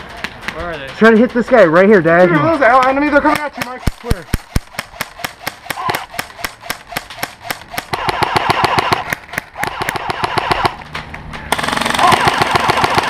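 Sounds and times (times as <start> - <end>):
airsoft guns firing full-auto: 2.9 - 10.8, 11.5 - 13.0.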